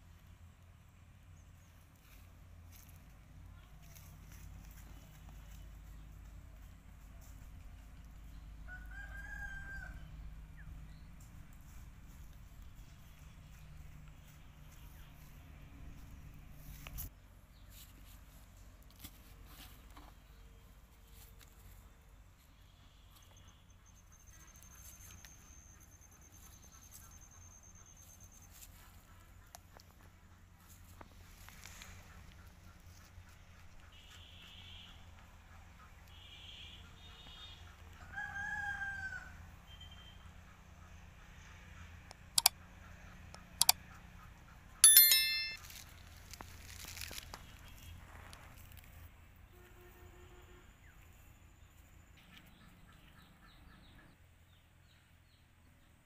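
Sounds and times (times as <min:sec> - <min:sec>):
thin high steady tone: 0:44.8 - 0:45.7
small metal bell ding: 0:44.8 - 0:45.8.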